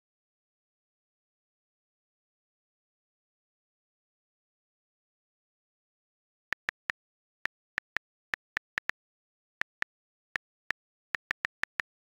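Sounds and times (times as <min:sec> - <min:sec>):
keyboard key-press clicks: 0:06.6 - 0:06.9, 0:11.2 - 0:12.0.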